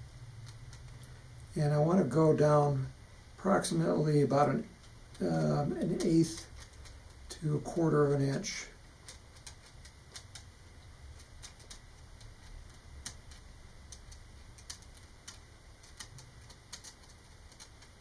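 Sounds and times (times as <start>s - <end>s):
low steady hum: 0.0s - 18.0s
pen tip ticking on ridges: 4.8s - 7.3s, 8.9s - 18.0s.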